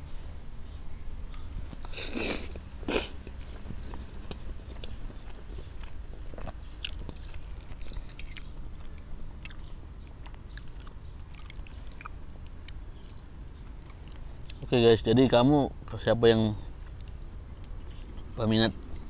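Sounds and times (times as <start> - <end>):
person chewing spaghetti: 1.3 - 13.2.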